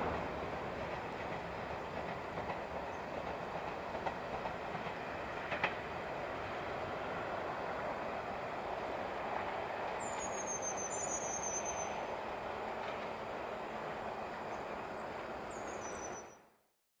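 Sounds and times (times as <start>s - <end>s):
outdoor rushing noise: 0.0s - 2.8s.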